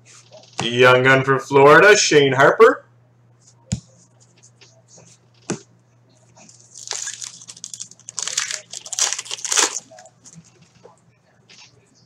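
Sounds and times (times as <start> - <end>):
foil pack tearing and crinkling: 6.7 - 10.0.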